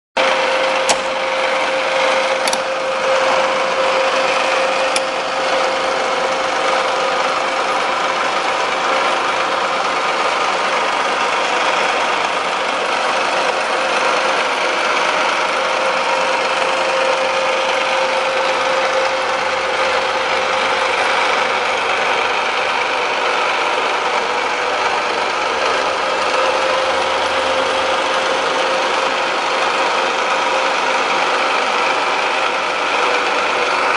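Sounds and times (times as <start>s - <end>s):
drill motor humming: 0.2s - 33.9s
short click: 0.8s - 1.1s, 2.4s - 2.7s.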